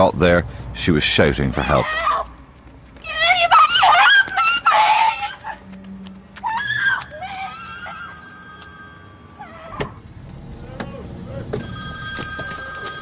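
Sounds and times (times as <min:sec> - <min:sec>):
woman shouting for help: 0:03.1 - 0:05.3
bell ringing: 0:07.5 - 0:09.7, 0:11.6 - 0:13.0.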